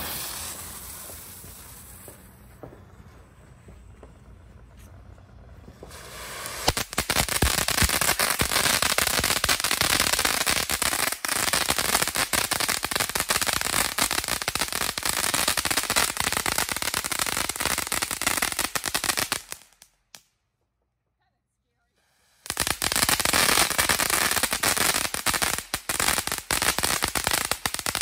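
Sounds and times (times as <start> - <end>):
rush of spark jet: 0.0 - 2.4, 5.9 - 11.2
firework fountain crackling: 0.0 - 20.0, 22.0 - 28.0.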